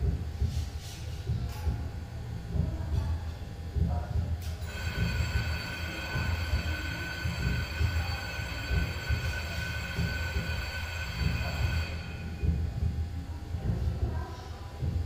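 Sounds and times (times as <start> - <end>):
high whining tones: 4.6 - 13.0.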